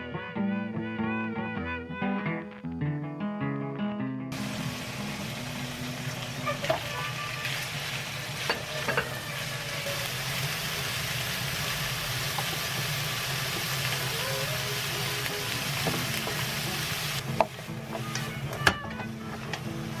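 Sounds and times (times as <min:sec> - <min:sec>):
meat and peppers sizzling in a pan: 0:04.4 - 0:20.0.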